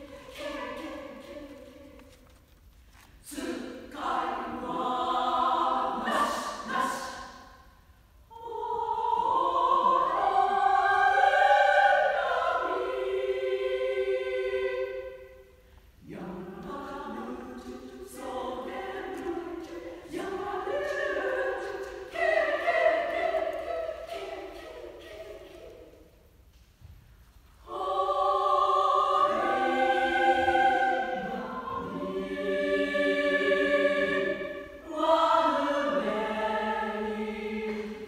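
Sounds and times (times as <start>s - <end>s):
women's choir singing: 0.0s - 2.4s, 3.2s - 26.4s, 27.6s - 38.0s.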